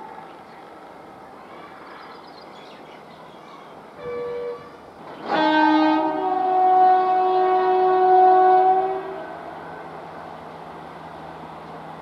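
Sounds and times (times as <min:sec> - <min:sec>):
locomotive horn blasts: 0:04.0 - 0:09.9.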